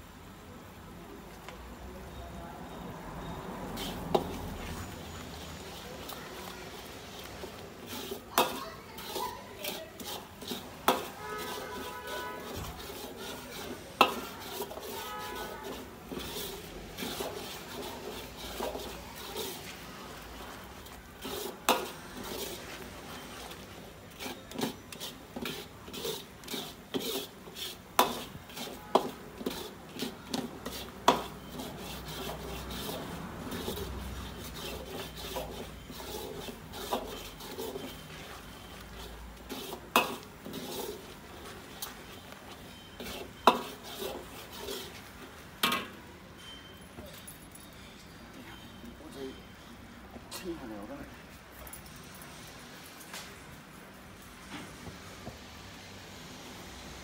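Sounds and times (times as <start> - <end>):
metal ladle scraping wok: 3.2 - 46.8
ladle clanking on wok: 7.4 - 19.6, 21.2 - 22.6, 24.2 - 33.0, 33.6 - 45.0.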